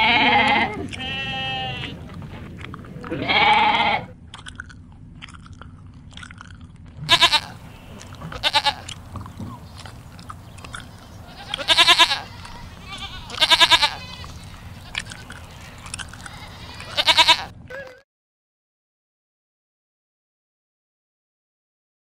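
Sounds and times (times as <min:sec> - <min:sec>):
goat bleating: 0:00.0 - 0:04.2, 0:07.0 - 0:18.0
grass being chewed: 0:00.2 - 0:18.0.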